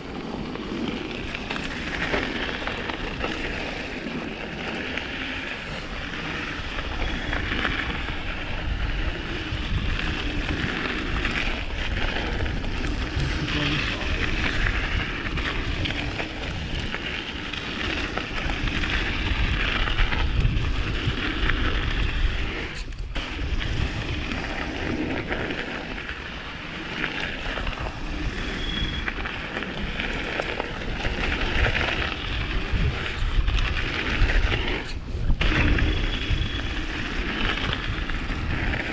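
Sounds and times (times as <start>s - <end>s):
bike tyres rattling over ground: 0.0s - 38.9s
wind on microphone: 0.0s - 38.9s.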